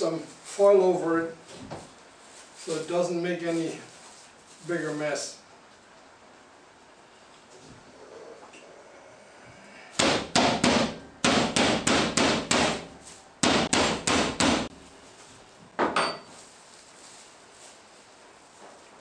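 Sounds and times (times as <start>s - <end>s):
meat mallet pounding cutlet: 10.0s - 14.7s.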